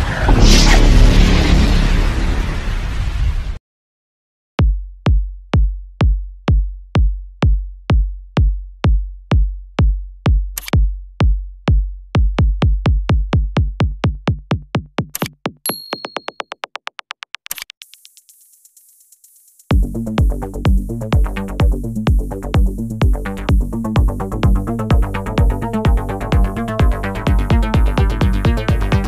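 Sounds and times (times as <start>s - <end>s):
electronic drum-machine kick: 4.6s - 16.9s, 19.6s - 29.0s.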